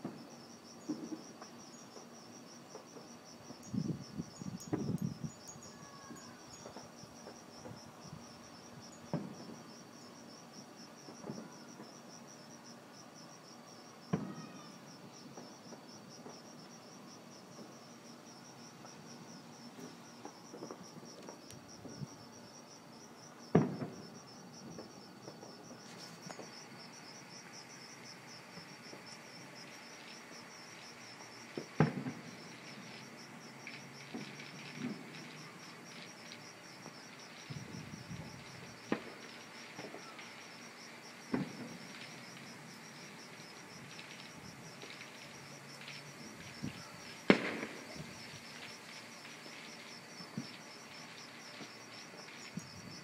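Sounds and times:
distant fireworks popping: 0.0s - 5.4s, 6.6s - 12.5s, 14.0s - 53.0s
crickets chirping: 0.0s - 53.0s.

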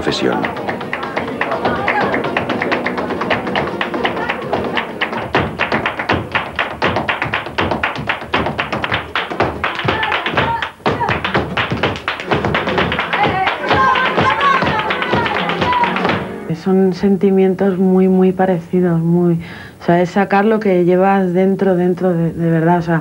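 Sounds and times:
hand-clapping: 0.0s - 16.4s
flamenco footwork: 0.0s - 16.6s
flamenco guitar: 0.0s - 17.0s.

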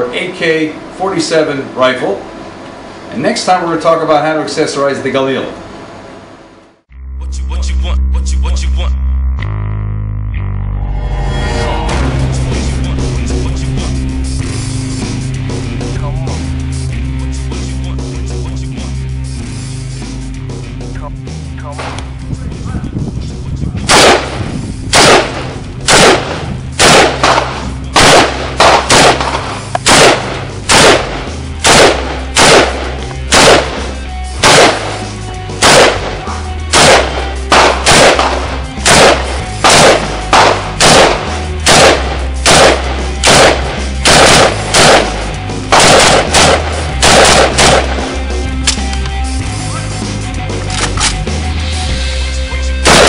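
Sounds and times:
background music with bass: 0.0s - 2.2s, 6.9s - 53.0s
rifle single shots: 23.9s - 48.1s.

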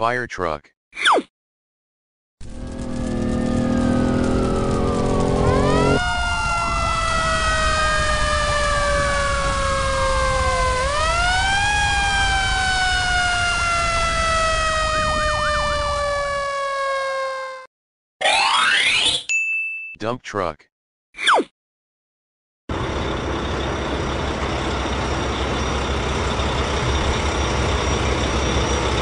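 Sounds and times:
low rumble: 2.4s - 16.0s
fire truck siren wailing: 2.4s - 17.7s, 22.7s - 29.0s.

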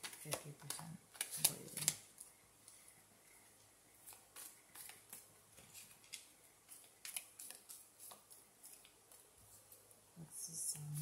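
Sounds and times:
cards being shuffled: 0.0s - 2.9s, 4.0s - 9.9s.

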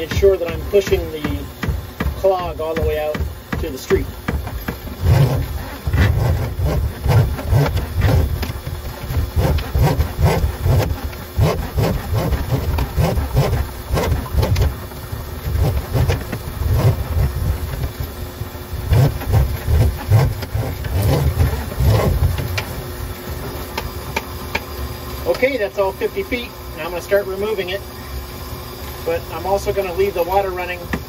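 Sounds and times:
cable knocking and rattling: 0.0s - 18.1s
drain snake motor pulsing: 0.0s - 27.8s.

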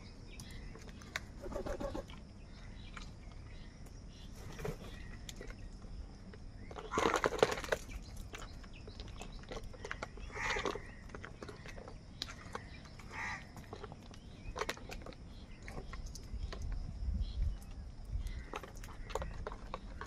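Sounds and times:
wing flapping and scuffling: 0.8s - 2.2s, 4.2s - 5.8s
crows cawing: 10.2s - 11.8s, 12.5s - 13.6s.

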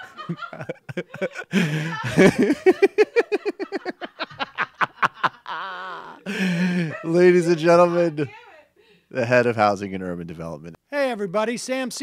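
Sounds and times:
man laughing hard: 0.0s - 7.5s.

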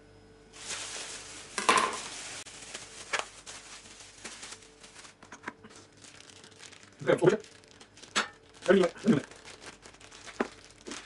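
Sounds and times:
plastic packaging crinkling: 0.6s - 11.0s.

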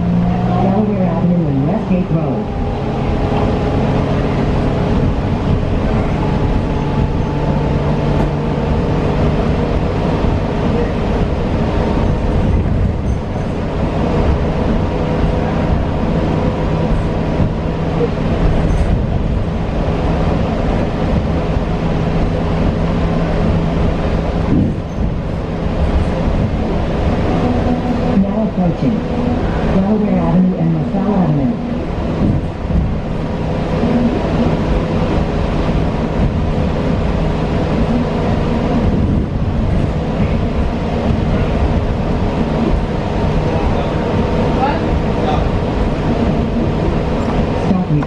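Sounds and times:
road and tyre rumble: 0.0s - 48.0s.

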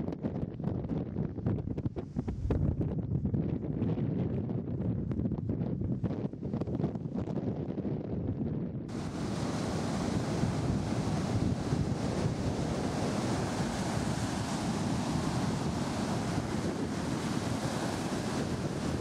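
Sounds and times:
wind buffeting microphone: 0.0s - 19.0s
surf on a beach: 8.9s - 19.0s.

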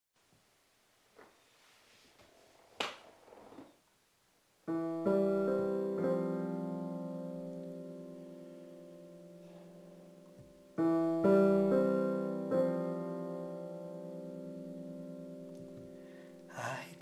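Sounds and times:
faint rustling: 1.0s - 3.9s
piano chords ringing: 4.7s - 17.0s.

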